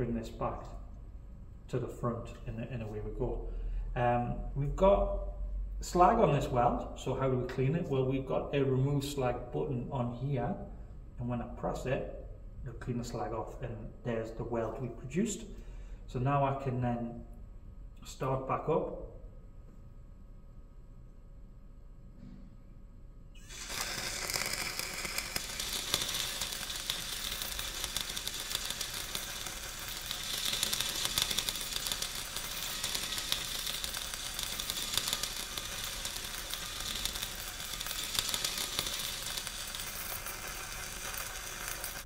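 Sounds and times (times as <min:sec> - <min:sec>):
crackling welding arc sizzle: 0:00.0 - 0:10.8, 0:23.3 - 0:42.0.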